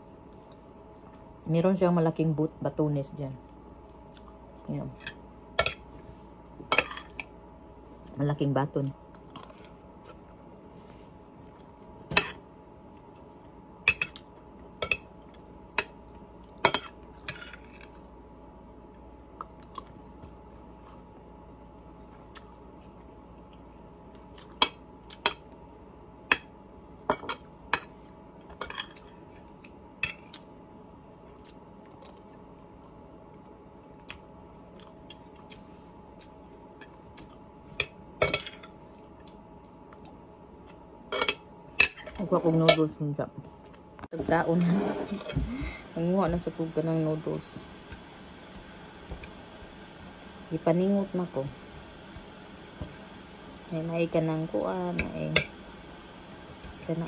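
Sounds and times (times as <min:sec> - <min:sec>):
faint steady hum: 0:00.0 - 0:57.0
metal spoon scraping a plate: 0:44.6 - 0:45.3.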